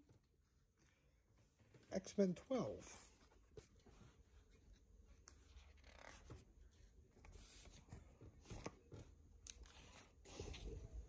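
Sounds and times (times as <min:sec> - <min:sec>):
comic book pages turning: 0:03.3 - 0:06.6.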